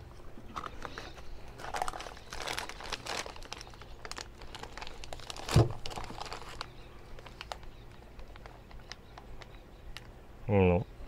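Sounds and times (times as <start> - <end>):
plastic bag crinkling: 0.5 - 9.5
cardboard flaps rustling: 1.7 - 6.6.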